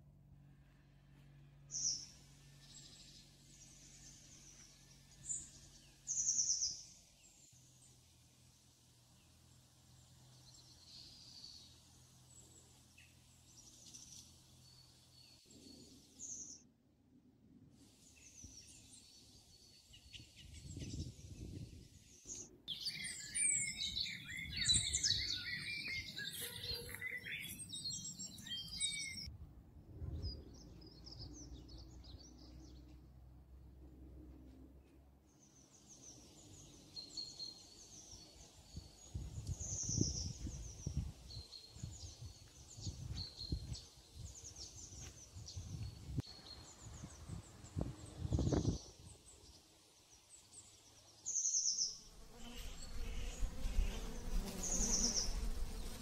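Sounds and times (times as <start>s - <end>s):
birds chirping and singing: 18.2s - 29.3s.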